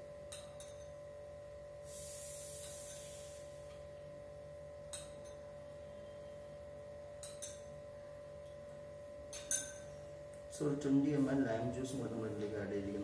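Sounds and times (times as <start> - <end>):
faint steady hum: 0.0 - 13.0
metal spoon clinking on steel jigger: 9.3 - 10.0.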